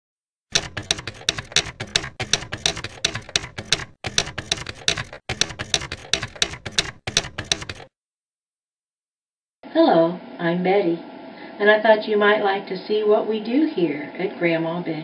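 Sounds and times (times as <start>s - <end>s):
typewriter keys clacking: 0.5s - 7.9s.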